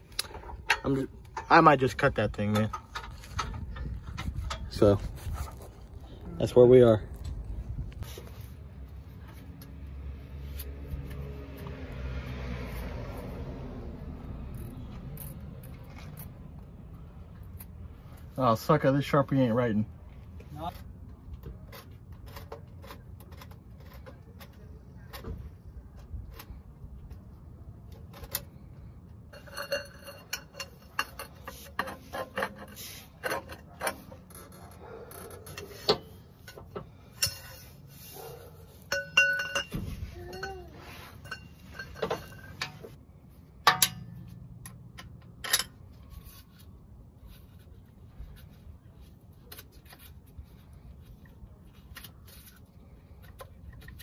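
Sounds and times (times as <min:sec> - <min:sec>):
hand tools clinking on metal: 0:29.3 - 0:43.0.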